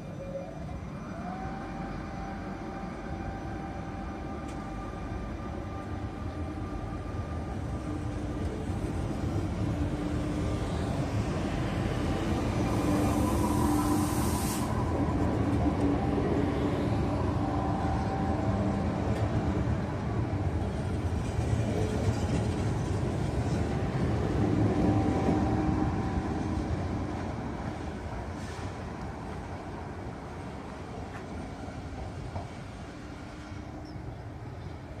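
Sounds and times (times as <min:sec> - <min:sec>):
train wheels rumbling: 0:00.7 - 0:35.0.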